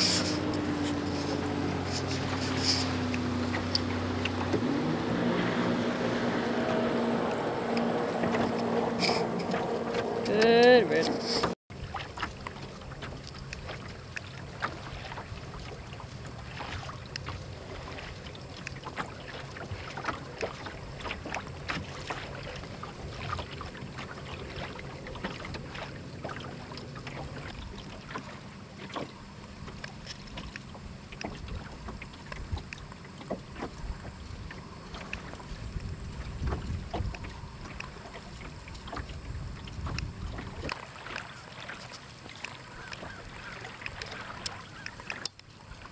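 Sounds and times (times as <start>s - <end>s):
water splashing against hull: 0.0s - 45.9s
wind buffeting microphone: 35.1s - 40.8s.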